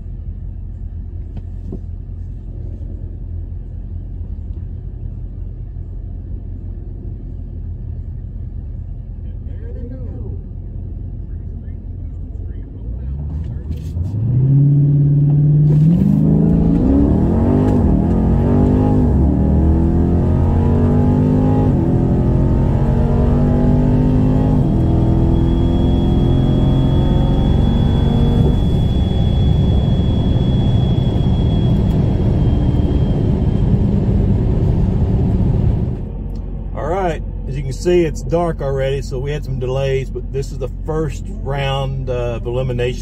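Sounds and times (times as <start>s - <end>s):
car engine revving through gears: 13.2s - 36.1s
faint high whine: 24.6s - 34.1s.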